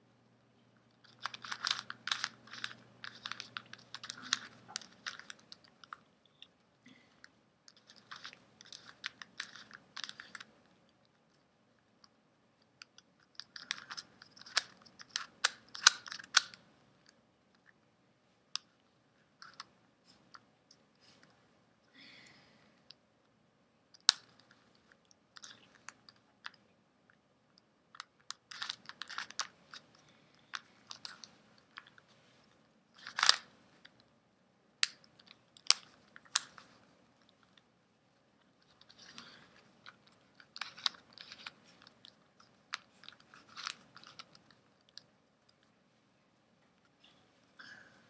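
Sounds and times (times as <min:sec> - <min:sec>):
plastic puzzle pieces clicking: 0:01.0 - 0:06.5, 0:07.7 - 0:10.6, 0:12.8 - 0:17.8, 0:24.0 - 0:26.6, 0:27.9 - 0:32.0, 0:33.0 - 0:34.0, 0:34.8 - 0:36.8, 0:38.6 - 0:45.6.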